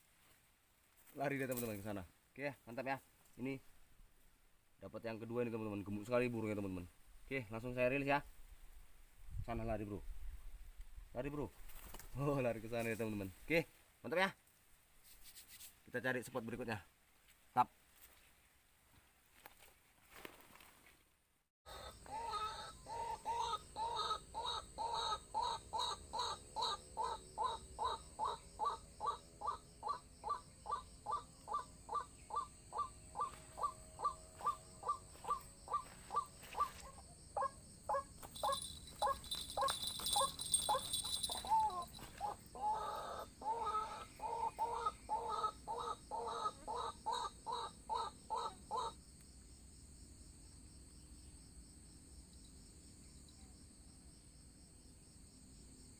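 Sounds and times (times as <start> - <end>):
waterhen calling: 21.7 - 48.9.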